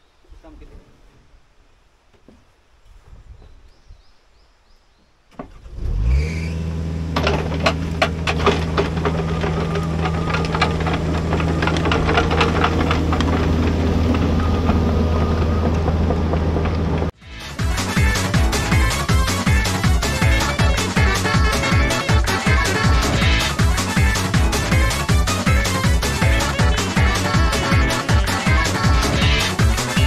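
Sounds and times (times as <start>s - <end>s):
faint outdoor rustling: 0.0s - 6.4s, 7.1s - 17.2s
diesel engine idling: 5.6s - 17.2s.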